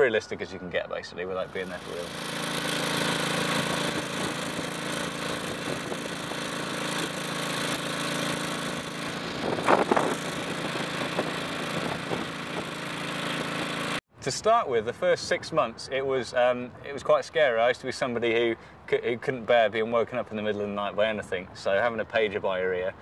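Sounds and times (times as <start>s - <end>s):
small pump engine running: 1.4s - 14.0s.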